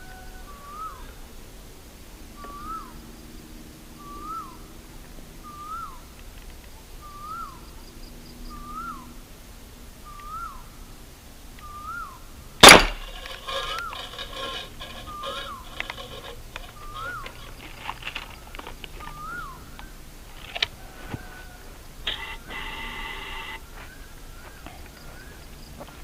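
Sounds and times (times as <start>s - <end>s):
bird calling: 2.4s - 3.0s, 4.0s - 4.7s, 5.4s - 6.1s, 7.0s - 9.2s, 10.0s - 10.8s, 11.6s - 26.0s
toy gun shot: 12.6s - 16.2s.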